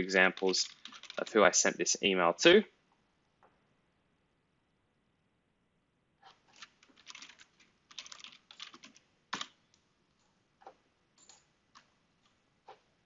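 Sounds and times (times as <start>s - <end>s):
computer keyboard typing: 0.2s - 1.3s, 6.5s - 9.6s, 11.2s - 12.3s.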